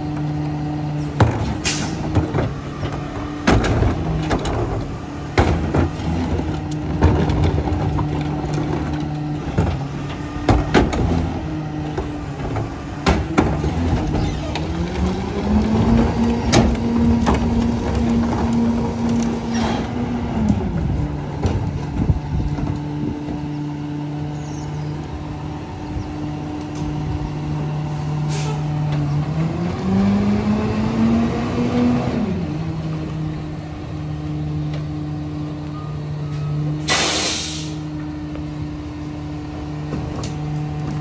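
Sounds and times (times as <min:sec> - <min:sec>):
diesel engine running: 0:00.0 - 0:41.0
bins banging and knocking: 0:01.1 - 0:23.5.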